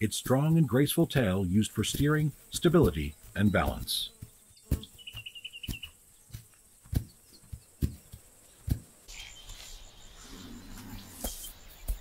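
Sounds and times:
kangaroo feet thudding: 0.1s - 9.7s, 10.7s - 12.0s
chirping trill: 0.6s - 8.2s
faint bird calls: 2.8s - 12.0s.

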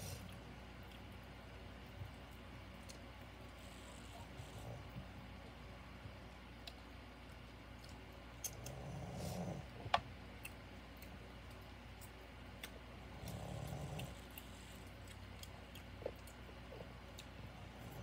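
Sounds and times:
soft breathing: 0.0s - 0.4s, 8.7s - 9.8s.

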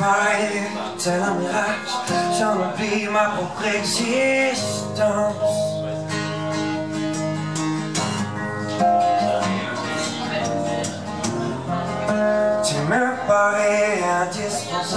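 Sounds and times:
man singing long notes: 0.0s - 6.4s, 12.5s - 14.9s
acoustic guitars strumming: 0.0s - 14.9s.

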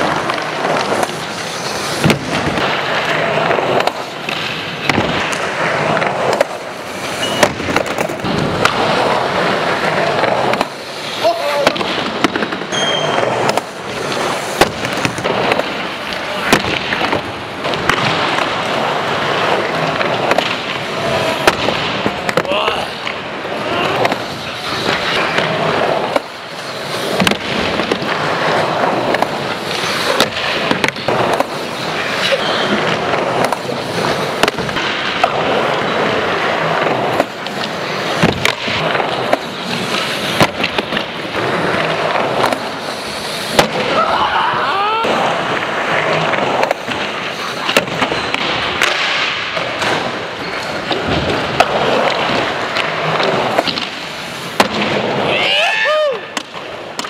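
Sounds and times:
skateboard wheels rolling: 0.0s - 57.0s
skateboard clacking on ramp: 2.0s - 23.2s.

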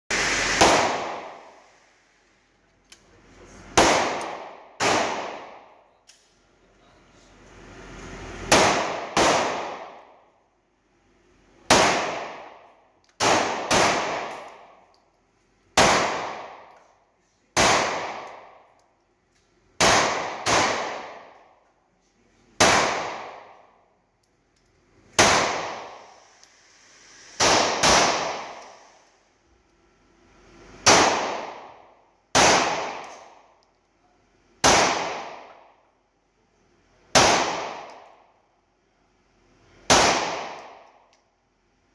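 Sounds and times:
pistol shots echoing indoors: 0.6s - 1.5s, 3.7s - 5.9s, 8.5s - 10.4s, 11.6s - 15.0s, 15.7s - 18.9s, 19.7s - 21.7s, 22.5s - 23.9s, 25.1s - 26.2s, 27.4s - 28.8s, 30.8s - 33.8s, 34.6s - 36.0s, 37.0s - 38.5s, 39.8s - 41.2s.

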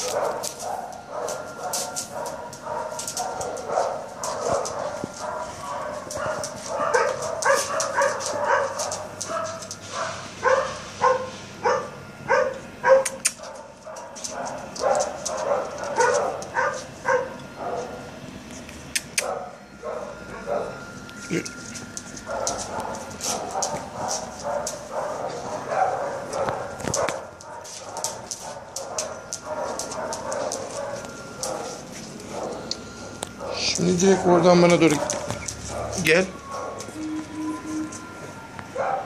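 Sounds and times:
dog barking and yipping: 0.0s - 18.1s, 19.0s - 20.9s, 22.1s - 36.9s, 38.7s - 39.0s.

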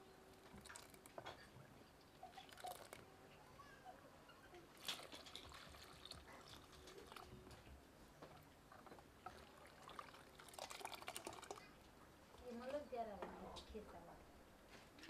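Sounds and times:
ladle stirring in a pot: 0.4s - 1.3s
liquid trickling: 0.4s - 1.4s, 2.2s - 3.1s, 4.8s - 11.8s.

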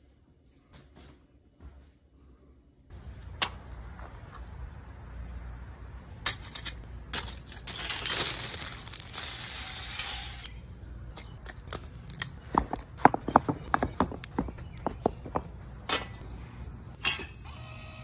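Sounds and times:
wood clinking on charcoal: 6.2s - 10.5s, 11.1s - 16.3s, 16.9s - 17.5s
charcoal poured rushing rattle: 7.3s - 10.5s.

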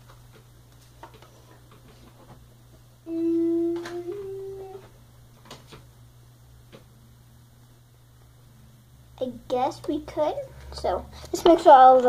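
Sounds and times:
low electrical hum: 0.0s - 12.0s
boy humming: 3.1s - 4.9s.

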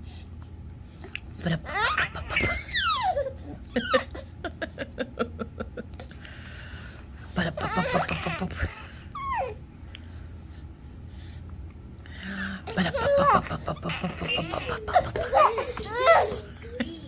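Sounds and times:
baby laughing: 1.6s - 4.4s, 7.6s - 9.6s, 12.7s - 17.0s.

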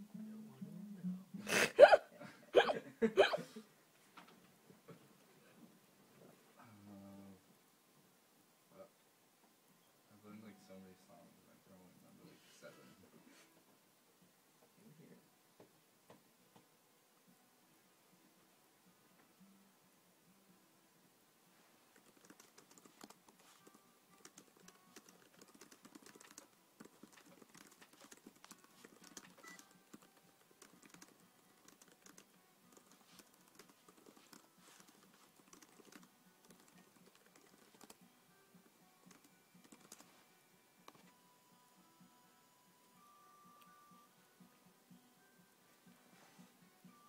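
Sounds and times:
typing on computer keyboard: 21.9s - 38.0s, 39.0s - 40.1s.

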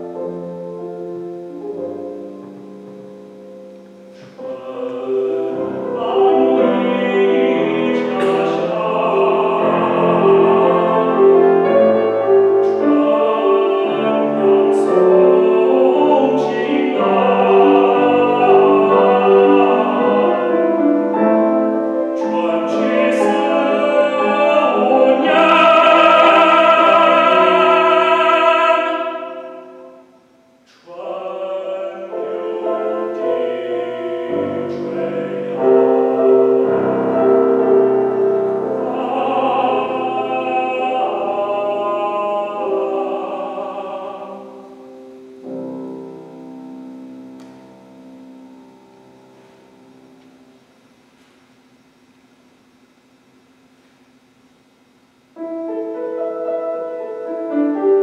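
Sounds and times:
grand piano accompaniment: 0.0s - 51.0s, 55.2s - 58.0s
man singing classical song: 4.0s - 46.4s.

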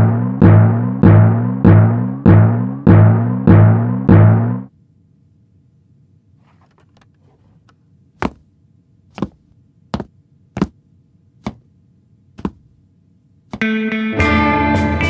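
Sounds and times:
sharp knocks on a hard surface: 8.2s - 8.4s, 9.2s - 9.4s, 10.0s - 10.8s, 11.4s - 11.6s, 12.4s - 12.7s.

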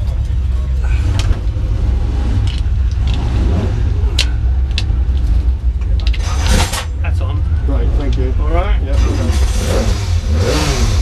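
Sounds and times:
steady low rumble: 0.0s - 11.0s
harness buckles clicking and rattling: 2.4s - 3.4s.

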